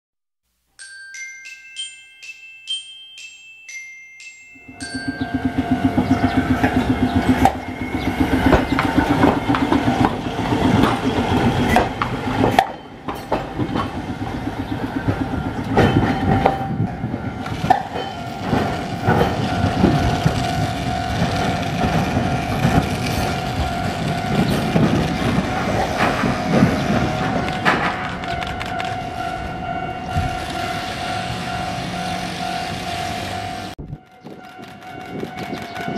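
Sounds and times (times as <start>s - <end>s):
steady high tone: 1.0s - 13.1s, 13.8s - 35.9s
tram running on track: 4.5s - 35.9s
wheels clicking over rail joints: 4.6s - 35.9s.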